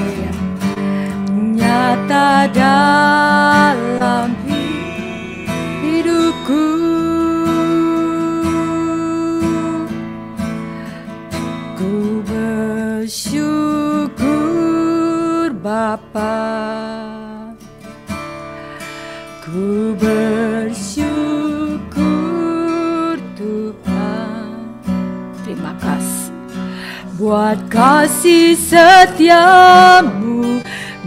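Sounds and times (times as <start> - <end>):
person singing worship song: 0.0 - 9.9, 19.4 - 24.7, 27.1 - 31.0
strummed acoustic guitar: 0.0 - 31.0.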